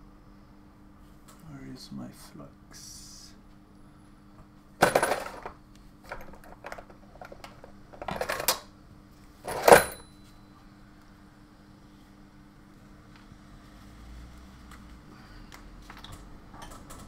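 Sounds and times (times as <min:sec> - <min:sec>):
faint steady hum: 0:00.0 - 0:17.0
metal tools clinking and clattering: 0:04.8 - 0:05.5, 0:09.5 - 0:10.1.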